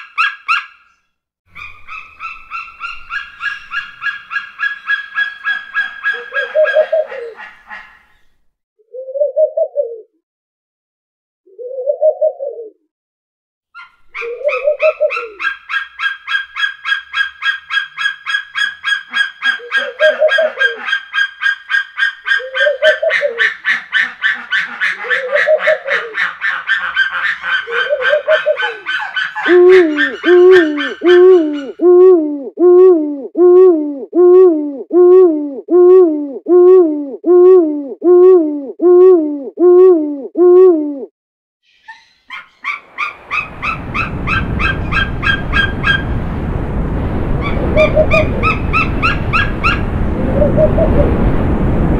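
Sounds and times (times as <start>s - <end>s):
owl hooting: 1.5s - 8.0s, 13.8s - 41.1s, 41.7s - 46.0s, 47.4s - 51.0s
eagle chattering chirps: 1.5s - 8.3s, 13.8s - 31.8s
wind blowing: 27.6s - 33.0s, 42.6s - 51.9s.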